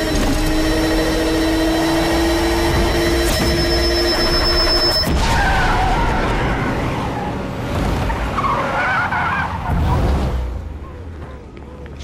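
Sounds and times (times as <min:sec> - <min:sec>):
car tyres squealing: 0:00.7 - 0:10.2.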